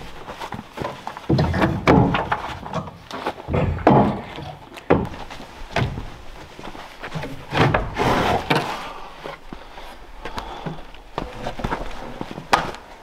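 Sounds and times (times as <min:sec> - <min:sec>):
wood scraping on wood: 0:00.0 - 0:13.0
wooden knocks and thuds: 0:00.5 - 0:06.3, 0:07.1 - 0:08.7.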